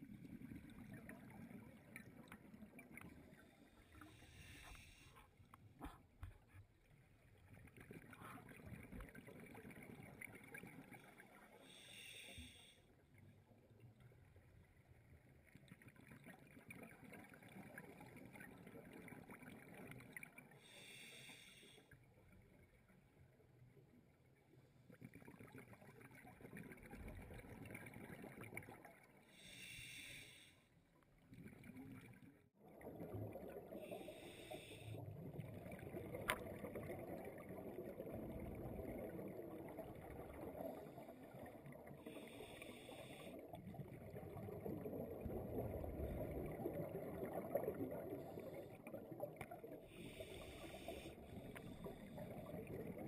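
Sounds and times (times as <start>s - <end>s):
scuba regulator inhalation hiss: 4.1s - 5.2s, 11.6s - 12.8s, 20.6s - 21.8s, 29.3s - 30.6s, 33.9s - 35.0s, 49.9s - 52.1s
bubbling exhaled air underwater: 31.4s - 53.0s.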